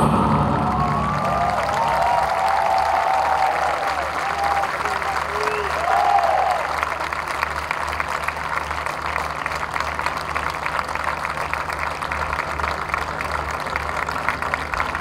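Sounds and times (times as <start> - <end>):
low hum: 0.0 - 4.2
audience applauding: 0.0 - 15.0.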